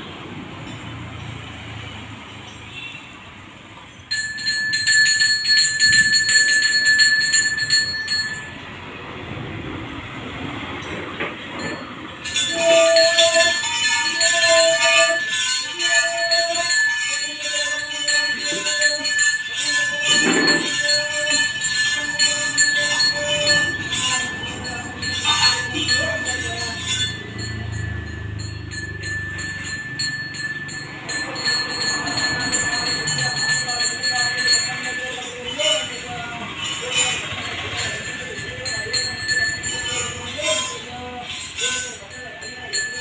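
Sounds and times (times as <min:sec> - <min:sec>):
bells and cymbals jingling: 0:00.6 - 0:09.0, 0:10.8 - 0:43.0.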